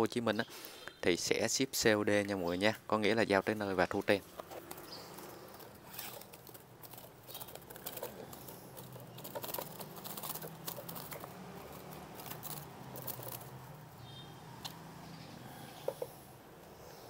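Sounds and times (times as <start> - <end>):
clicks and rattles on cage bars: 4.6 - 13.8
bird wings fluttering: 4.7 - 13.8.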